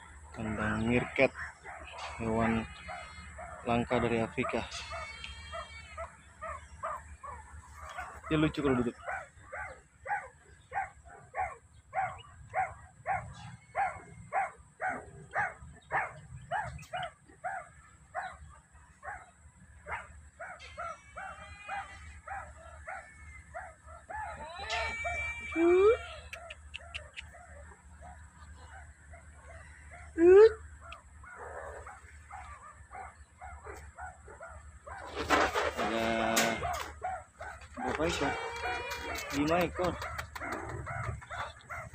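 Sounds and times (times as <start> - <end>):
meerkats barking calls: 35.0 - 41.9.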